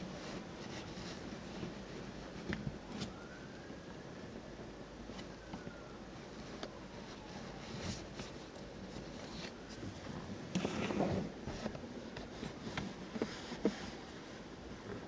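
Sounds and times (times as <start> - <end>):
hand rubbing fabric upholstery: 7.1 - 15.0.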